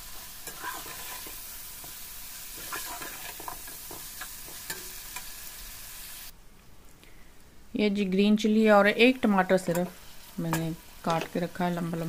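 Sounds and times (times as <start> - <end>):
metal spoon scraping wok: 0.0 - 5.4
chicken sizzling in hot oil: 0.0 - 6.3, 9.1 - 12.0.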